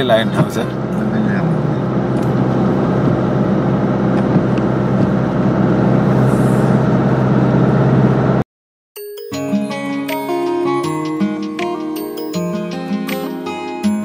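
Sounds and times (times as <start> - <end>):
car cabin road and engine noise: 0.0 - 8.4
tinkling background music: 9.0 - 14.0.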